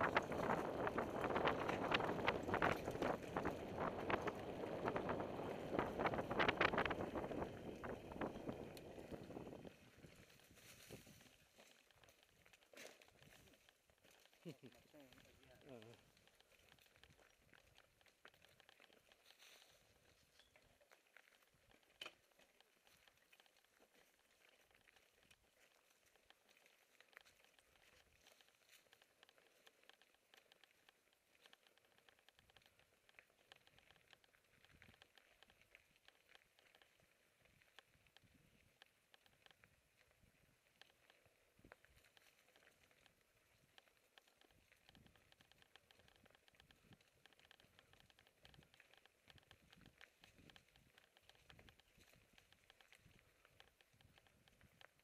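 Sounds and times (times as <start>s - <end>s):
wind noise on microphone: 0.0s - 11.2s
bikes rattling: 0.0s - 55.0s
tyres on dirt and stones: 0.0s - 55.0s.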